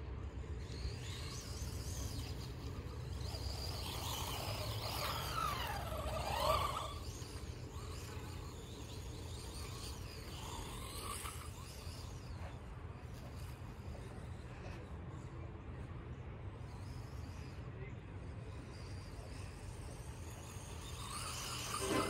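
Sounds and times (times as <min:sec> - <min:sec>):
toy car electric motor whining: 0:00.0 - 0:15.3, 0:16.6 - 0:17.6, 0:18.2 - 0:22.0.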